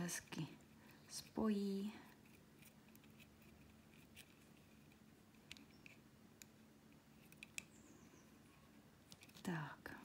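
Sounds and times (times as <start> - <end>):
small tool clicking and tapping: 7.2 - 7.8.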